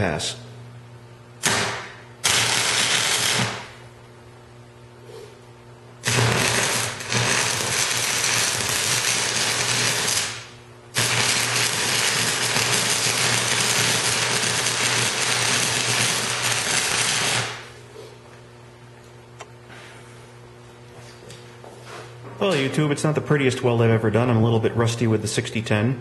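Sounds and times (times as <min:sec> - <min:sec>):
stick welding arc: 0:01.4 - 0:03.8, 0:06.0 - 0:17.7.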